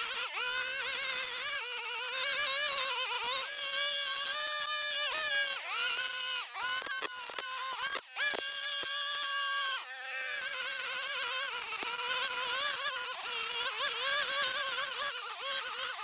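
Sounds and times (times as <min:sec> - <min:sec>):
string trimmer whining: 0:00.0 - 0:16.0.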